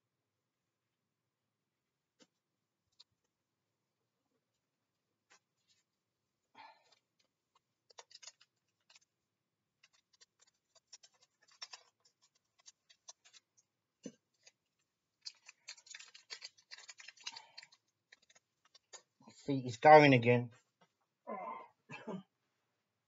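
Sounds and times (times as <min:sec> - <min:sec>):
cards and plastic crinkling: 0:07.8 - 0:09.1, 0:09.8 - 0:19.2.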